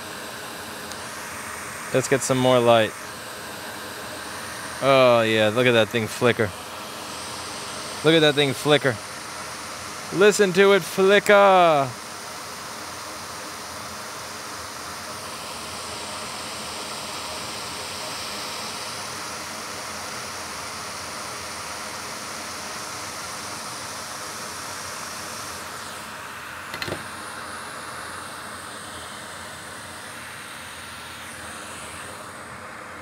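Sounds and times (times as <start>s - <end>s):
fume extractor fan hiss: 0.0s - 33.0s
sharp click: 26.7s - 27.1s.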